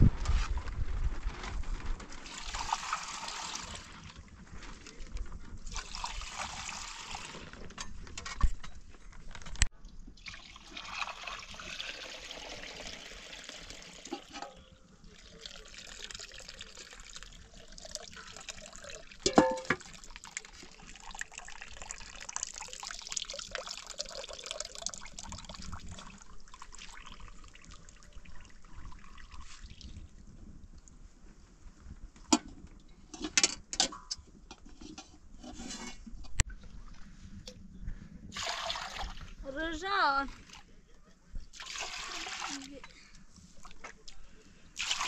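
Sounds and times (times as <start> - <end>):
milk trickling and splashing: 2.2 - 4.2, 5.6 - 7.6, 10.1 - 14.4, 15.0 - 30.0, 38.3 - 39.5, 41.5 - 43.0, 44.8 - 45.0
metal bowl knocks and clinks: 19.2 - 19.8.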